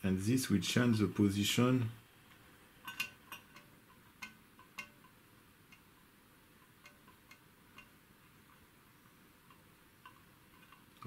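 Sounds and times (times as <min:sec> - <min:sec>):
light metallic ticks and clicks: 0:02.3 - 0:08.7, 0:09.4 - 0:11.0.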